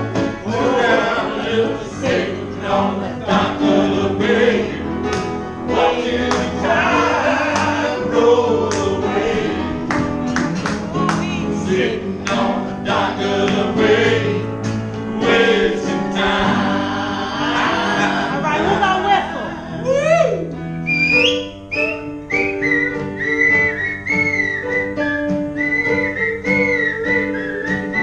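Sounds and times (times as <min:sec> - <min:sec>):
piano: 0:00.0 - 0:28.0
man singing: 0:05.7 - 0:09.2, 0:15.2 - 0:18.6.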